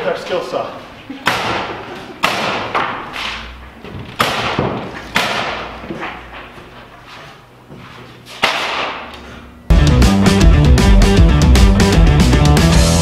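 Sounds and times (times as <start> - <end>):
wooden boards knocking: 3.9 - 6.2.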